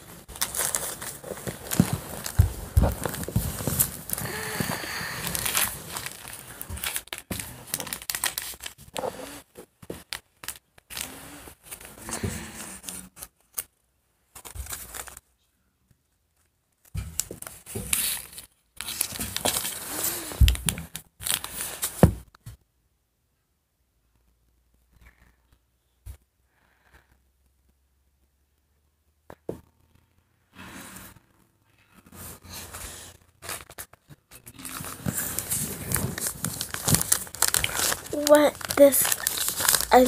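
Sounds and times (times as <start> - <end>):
bedding rustling and crinkling: 0.0 - 9.1, 16.8 - 22.3, 32.1 - 40.0.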